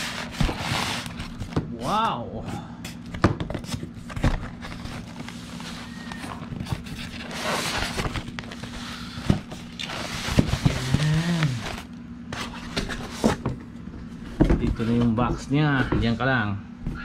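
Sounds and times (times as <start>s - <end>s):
foam and cardboard rubbing: 0.0s - 1.5s, 4.5s - 13.4s
steady low hum: 0.0s - 17.0s.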